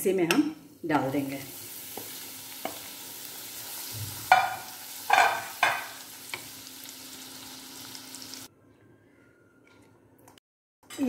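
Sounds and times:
chilies sizzling in oil: 0:00.7 - 0:08.5.

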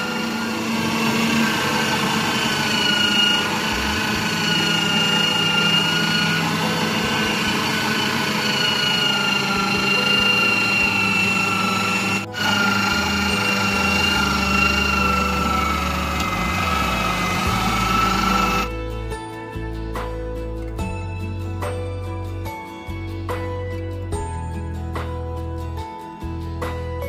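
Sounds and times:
meat grinder motor whining: 0:00.0 - 0:18.8.

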